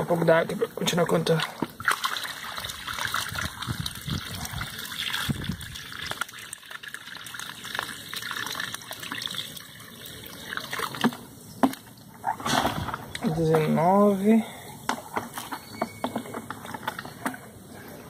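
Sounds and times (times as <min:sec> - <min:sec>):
water pouring from a container: 0:00.1 - 0:12.0.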